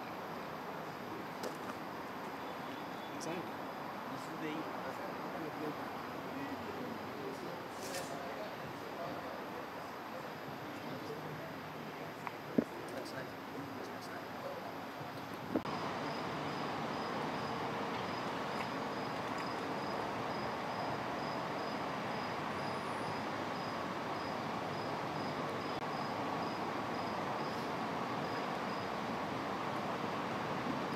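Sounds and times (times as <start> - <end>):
cricket chirping: 0.0 - 8.1, 15.5 - 29.1.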